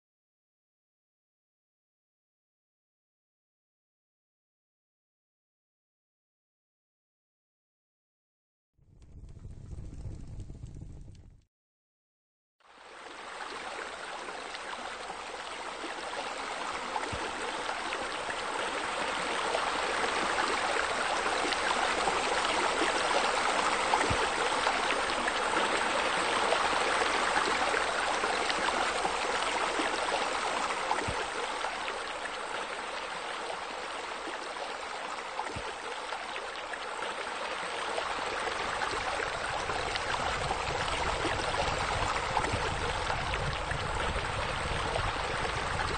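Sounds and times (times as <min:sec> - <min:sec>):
rushing splashing water: 0:12.7 - 0:45.9.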